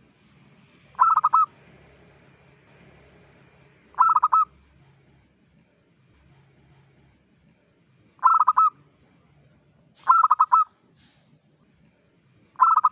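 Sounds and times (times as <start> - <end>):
dove cooing: 1.0 - 1.5, 4.0 - 4.6, 8.2 - 8.8, 10.0 - 10.7, 12.6 - 12.9.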